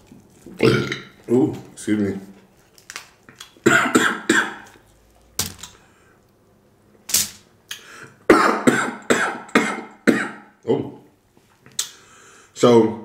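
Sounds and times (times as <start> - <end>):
man coughing: 3.7 - 4.7, 8.3 - 10.5.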